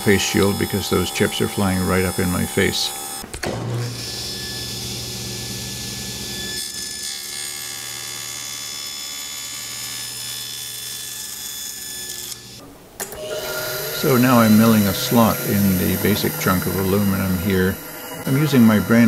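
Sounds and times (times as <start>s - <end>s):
table saw whine: 0.0s - 19.0s.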